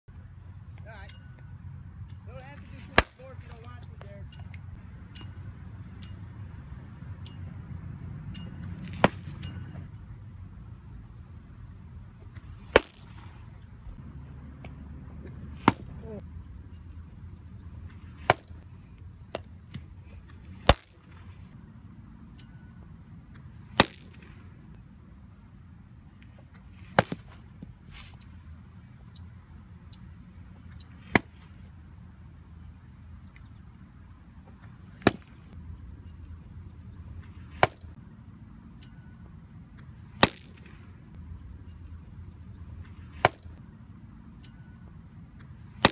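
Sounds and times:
baseball popping into mitt: 8.8 - 9.4, 12.2 - 13.3, 14.6 - 16.2, 20.5 - 21.1, 23.7 - 24.4, 26.8 - 27.8, 37.2 - 37.9, 40.2 - 40.8, 42.9 - 43.5, 45.4 - 45.9.

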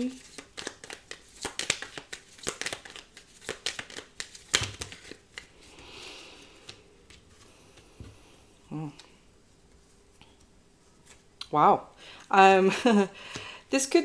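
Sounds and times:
cards shuffling snaps: 0.2 - 5.5.

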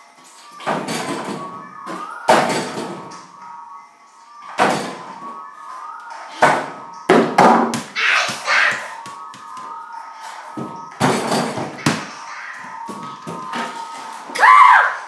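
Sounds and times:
ball bouncing on floor: 7.1 - 9.7, 10.6 - 12.1.

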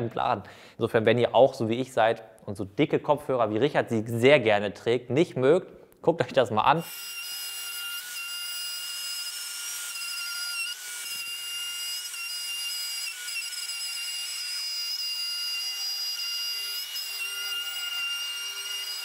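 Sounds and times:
router cutting wood: 6.8 - 19.0.

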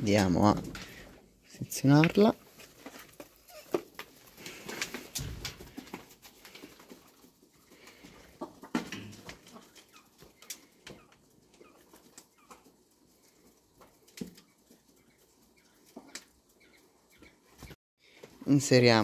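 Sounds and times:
hens pecking at feed tray: 0.1 - 17.6.

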